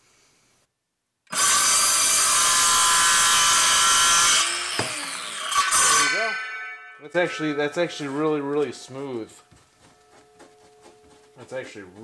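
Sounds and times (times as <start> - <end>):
circular saw cutting wood: 1.3 - 8.9.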